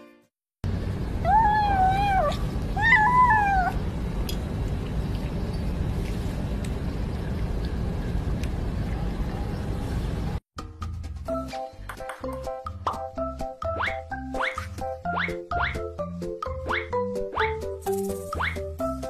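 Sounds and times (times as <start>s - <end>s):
low background rumble: 0.6s - 10.4s
kitten meowing: 1.2s - 3.8s.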